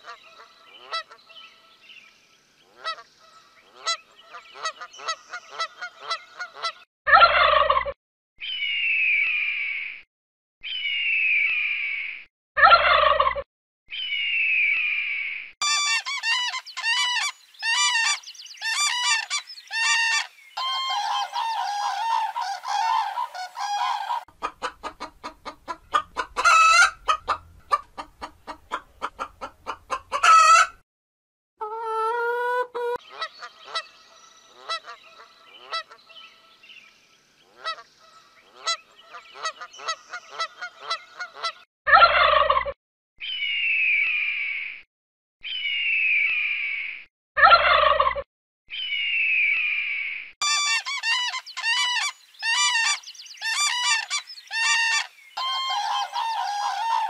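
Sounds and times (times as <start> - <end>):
high falling bird scream: 13.9 - 24.3, 48.7 - 57.0
chickens clucking: 15.6 - 30.8, 50.4 - 57.0
quiet bird calls: 15.7 - 24.2, 50.4 - 57.0.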